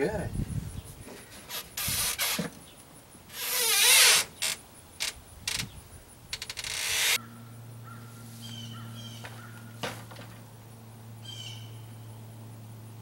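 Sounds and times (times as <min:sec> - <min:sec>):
steady low hum: 0:04.3 - 0:13.0
board scraping and knocking: 0:09.8 - 0:10.4.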